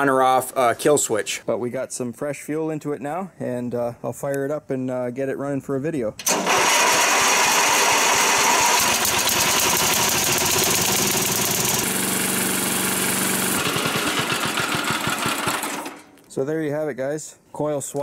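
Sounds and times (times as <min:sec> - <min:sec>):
riding mower engine running: 0:06.2 - 0:16.2.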